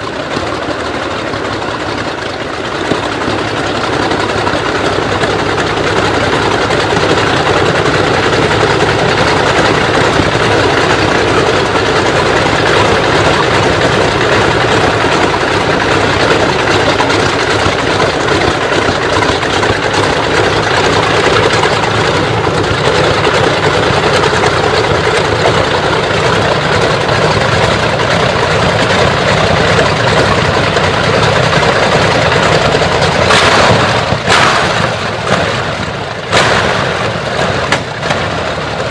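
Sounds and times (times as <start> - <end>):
aircraft engine idling rough: 0.0 - 38.9
sharp exhaust bang: 33.1 - 38.7.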